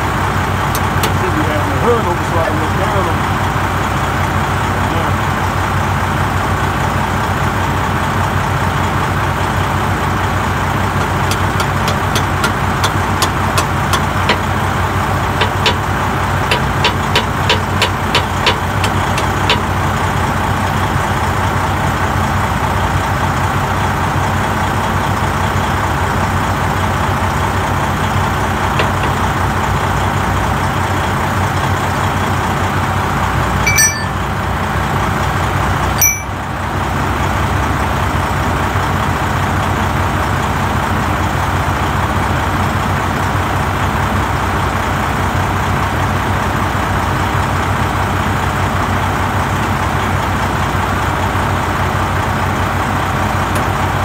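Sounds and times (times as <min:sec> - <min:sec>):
engine idling: 0:00.0 - 0:34.0
hammer tapping metal: 0:33.7 - 0:34.2, 0:36.0 - 0:36.3.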